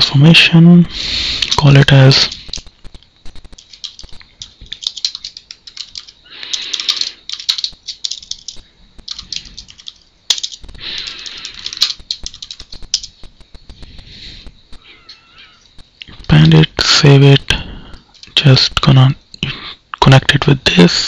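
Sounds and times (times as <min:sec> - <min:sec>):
keyboard typing: 0:01.4 - 0:16.7, 0:17.9 - 0:18.6.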